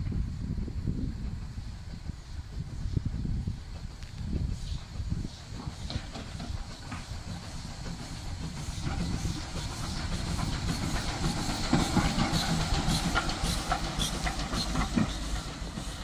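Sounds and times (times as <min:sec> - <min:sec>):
steam hissing: 0:00.0 - 0:16.0
steam locomotive running slowly: 0:00.0 - 0:16.0
wheels clicking and clanking: 0:05.5 - 0:15.9.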